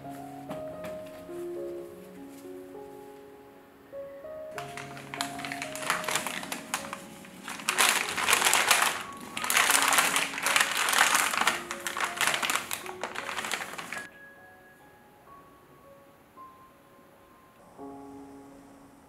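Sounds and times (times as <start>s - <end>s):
soft background music: 0.0s - 19.0s
paper bag rustling and crinkling: 4.6s - 14.1s.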